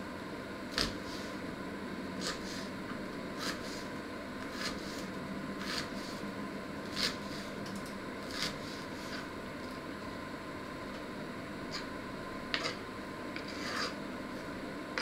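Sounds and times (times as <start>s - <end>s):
steady low hum: 0.0s - 15.0s
knife cutting onion on board: 0.7s - 1.3s, 2.2s - 2.7s, 3.4s - 6.2s, 6.8s - 7.6s, 8.2s - 9.3s, 12.5s - 12.8s, 13.4s - 14.0s.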